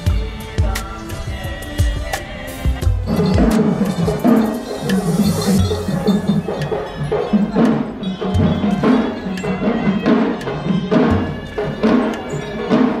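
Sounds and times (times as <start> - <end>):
deep drum beat: 1.8 - 12.2
wood-block-like strikes: 2.8 - 13.0.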